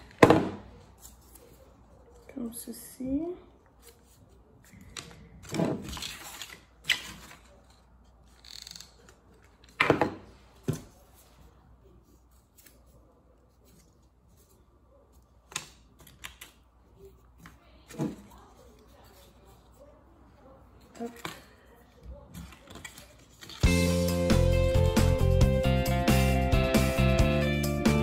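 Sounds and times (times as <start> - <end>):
paper rustling and crinkling: 3.8 - 15.0, 20.7 - 23.7.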